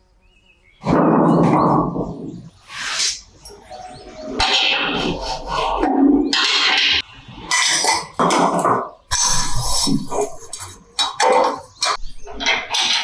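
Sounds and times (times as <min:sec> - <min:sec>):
metal parts rubbing and knocking: 0:04.2 - 0:13.0.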